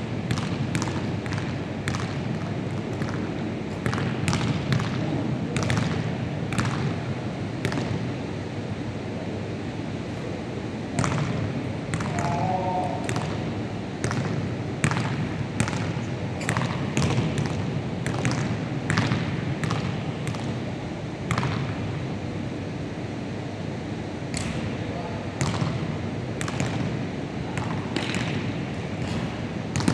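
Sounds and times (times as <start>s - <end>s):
basketball bouncing on wooden floor: 0.3s - 7.0s, 14.0s - 20.6s, 29.0s - 29.9s.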